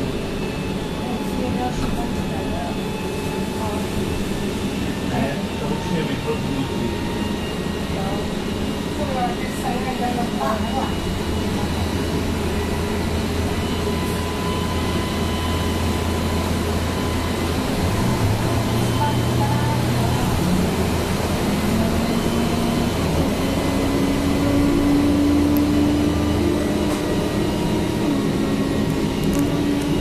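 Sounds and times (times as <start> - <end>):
motor tone climbing: 9.2 - 30.0.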